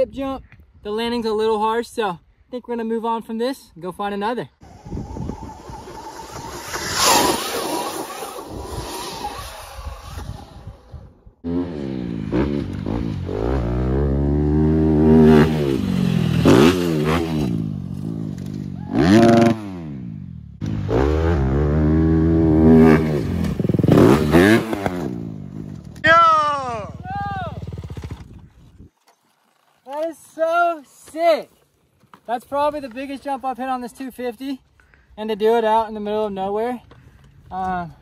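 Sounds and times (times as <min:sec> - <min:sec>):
rushing noise: 0:04.6 - 0:10.9
dirt bike engine revving: 0:04.6 - 0:28.5.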